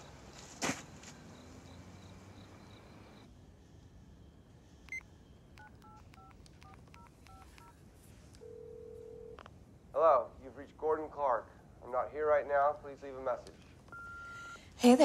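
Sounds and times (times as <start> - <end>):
steady telephone line tone: 4.9 - 7.8, 8.4 - 9.5, 13.9 - 14.7
touch-tone key tones: 5.6 - 7.7, 13.9 - 14.6.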